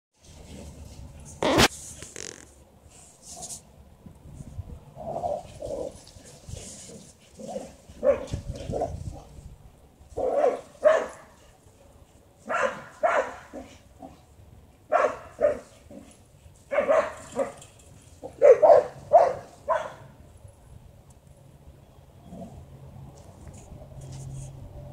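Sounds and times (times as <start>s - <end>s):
dog barking: 8.0s - 8.3s, 10.2s - 11.4s, 12.5s - 13.8s, 14.9s - 15.7s, 16.7s - 17.6s, 18.3s - 20.1s.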